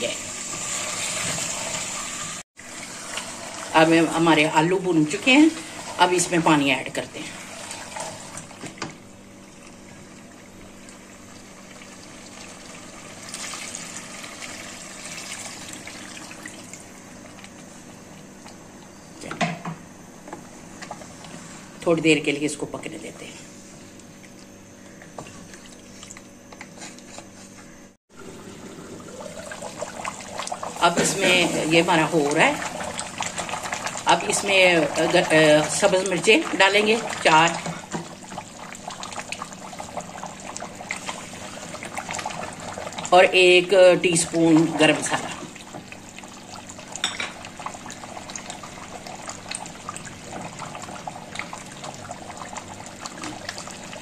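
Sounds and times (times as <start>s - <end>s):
curry bubbling and popping: 28.1s - 54.0s.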